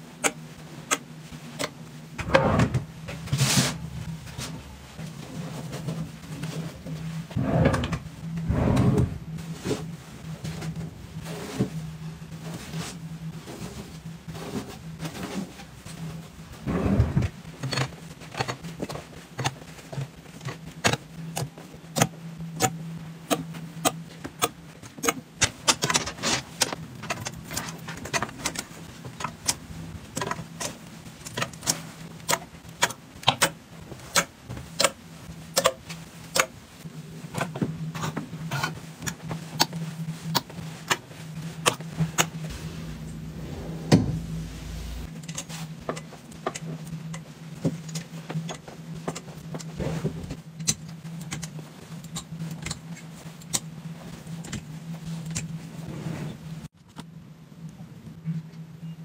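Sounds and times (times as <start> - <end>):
steady low hum: 0.0 - 59.0
loud knock: 42.5 - 45.0.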